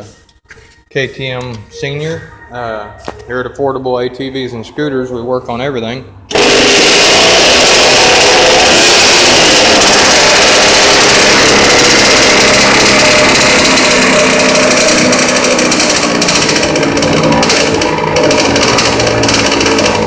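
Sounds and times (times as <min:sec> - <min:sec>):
dirt bike engine revving: 0:06.3 - 0:20.0.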